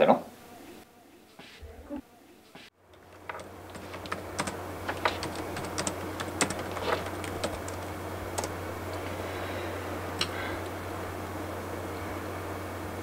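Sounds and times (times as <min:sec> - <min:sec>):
low steady hum: 0:00.3 - 0:13.0
laptop keyboard typing: 0:02.9 - 0:08.6.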